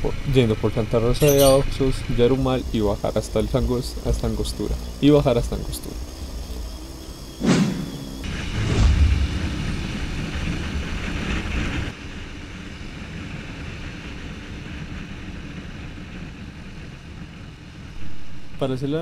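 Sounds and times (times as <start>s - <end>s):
motorcycle engine cruising: 0.0s - 11.9s
wind noise: 0.0s - 19.0s
downward whoosh effect: 7.4s - 10.5s.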